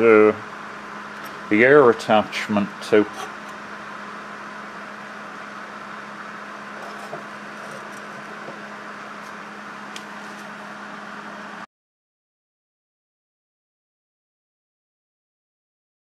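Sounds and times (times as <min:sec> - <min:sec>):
steady mechanical hum: 0:00.0 - 0:11.7.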